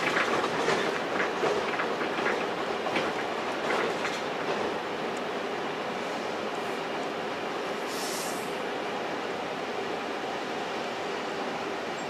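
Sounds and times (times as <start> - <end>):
light rail clicks: 0.0 - 5.3, 6.4 - 7.2
train wheels rumbling on rails: 0.0 - 12.0.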